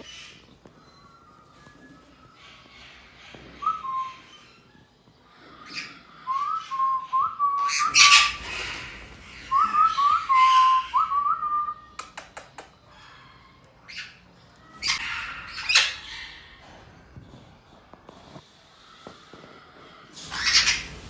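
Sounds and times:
parrots squawking: 0:07.6 - 0:11.2, 0:12.9 - 0:16.6, 0:20.2 - 0:21.0
quick sharp clicks: 0:12.0 - 0:12.8.

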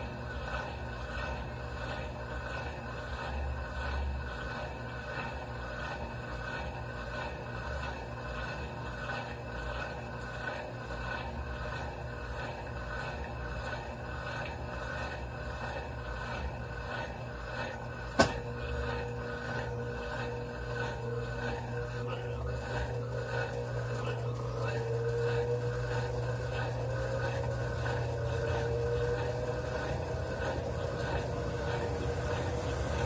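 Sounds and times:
motor whine of spin cycle: 0:00.0 - 0:33.0
washing machine humming: 0:00.0 - 0:33.0.

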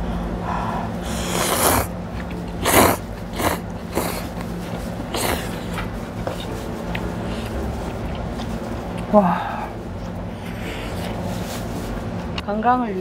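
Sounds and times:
steady low hum: 0:00.0 - 0:13.0
noodles slurped: 0:01.1 - 0:06.5.

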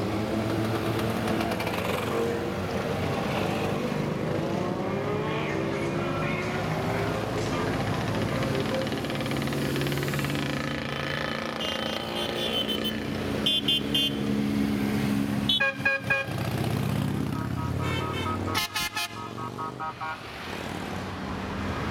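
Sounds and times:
motorcycles riding past: 0:00.0 - 0:21.9
horns tooting short beeps: 0:17.3 - 0:20.2.

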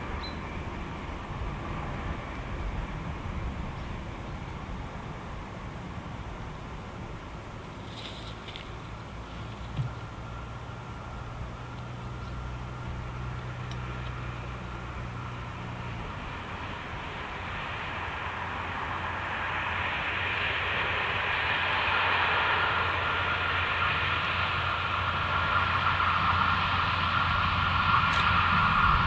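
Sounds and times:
diesel locomotive approaching: 0:00.0 - 0:29.0.

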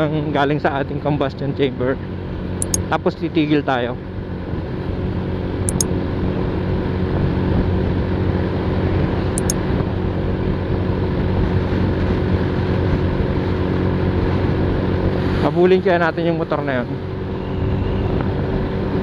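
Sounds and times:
wind and road noise: 0:04.1 - 0:19.0.

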